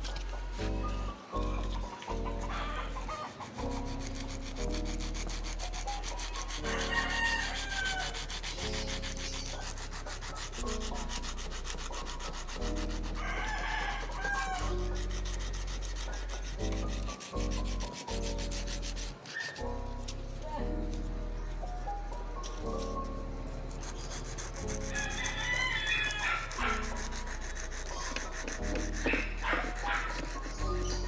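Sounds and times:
rooster crowing: 0:02.4 - 0:03.4, 0:06.6 - 0:08.3, 0:13.1 - 0:15.0, 0:24.9 - 0:26.8.

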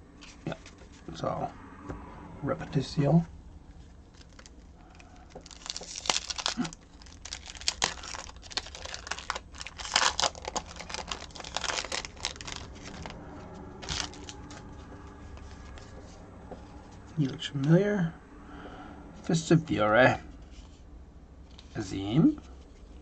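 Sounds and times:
wrapper tearing and crinkling: 0:04.1 - 0:13.2, 0:13.8 - 0:14.7.

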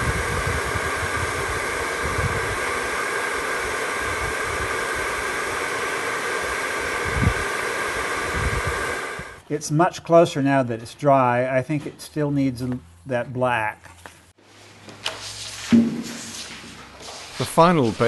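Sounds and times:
hot-air gun blowing: 0:00.0 - 0:09.4.

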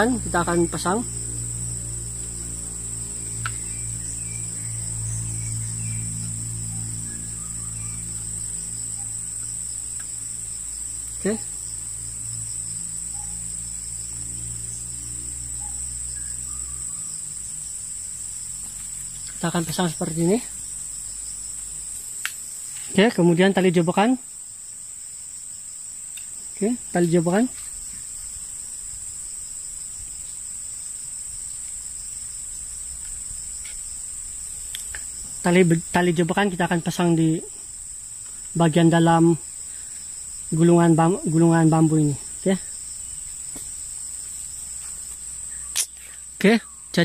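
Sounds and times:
faint low hum: 0:00.0 - 0:25.1
insects chorus: 0:00.0 - 0:47.0.

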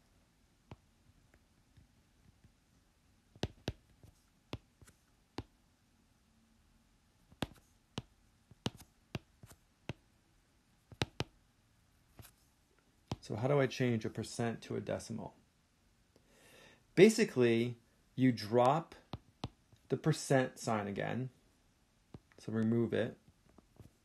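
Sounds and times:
pen tapping on paper: 0:03.3 - 0:05.5, 0:07.3 - 0:10.0, 0:10.9 - 0:11.3, 0:19.1 - 0:19.6.

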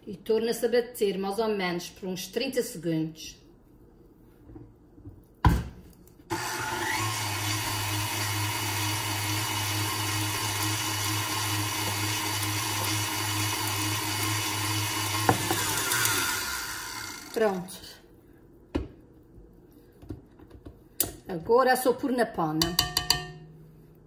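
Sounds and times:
stand mixer whisking batter: 0:06.3 - 0:17.4.

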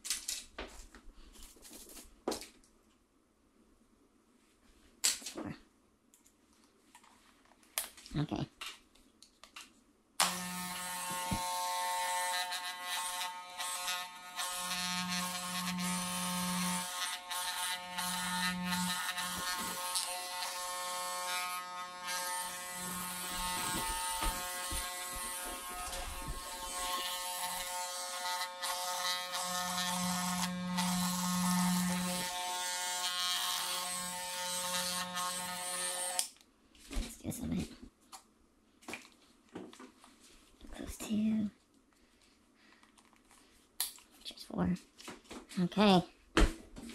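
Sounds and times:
electric hair clipper buzzing: 0:10.2 - 0:36.3.

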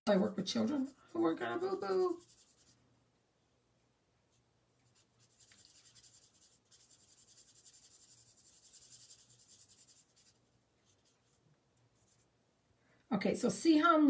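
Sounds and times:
marker scratching on cardstock: 0:00.6 - 0:02.8, 0:04.8 - 0:11.4.

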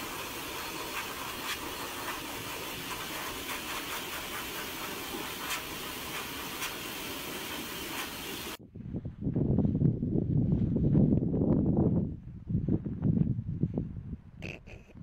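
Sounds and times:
shower water spraying: 0:00.0 - 0:08.6.

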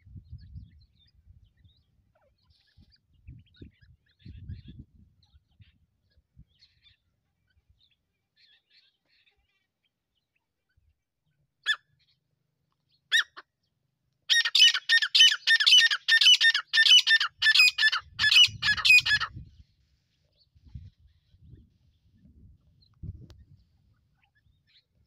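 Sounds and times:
bird calling: 0:14.3 - 0:19.4.

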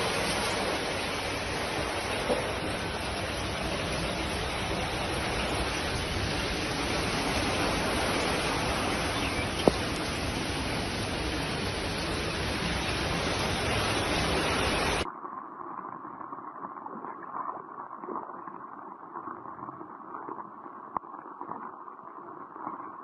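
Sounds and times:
heavy rain pouring: 0:00.0 - 0:15.1.

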